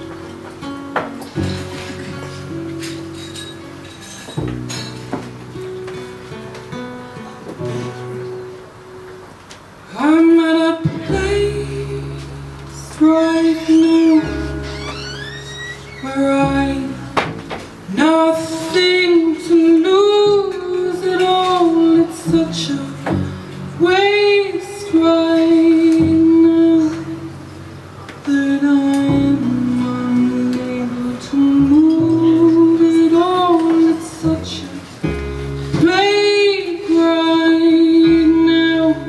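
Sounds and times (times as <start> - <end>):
acoustic guitar: 0.0 - 39.0
double bass: 0.0 - 39.0
woman singing into a microphone: 9.8 - 14.8, 15.9 - 39.0.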